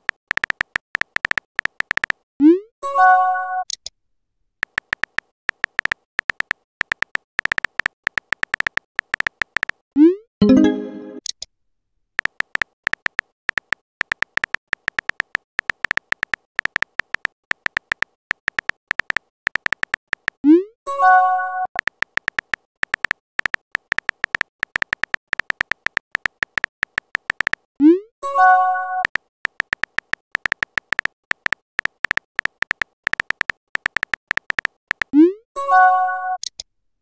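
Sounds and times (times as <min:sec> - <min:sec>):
keyboard typing clicks: 0:00.0 - 0:02.2, 0:04.6 - 0:09.8, 0:12.2 - 0:27.7, 0:28.4 - 0:35.2
message sent pop and chime: 0:10.4 - 0:11.3.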